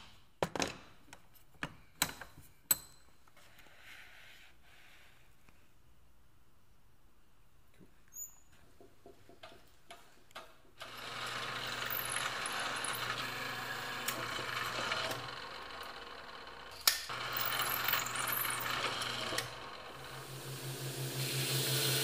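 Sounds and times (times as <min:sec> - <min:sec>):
drill press motor running: 0:10.8 - 0:22.0.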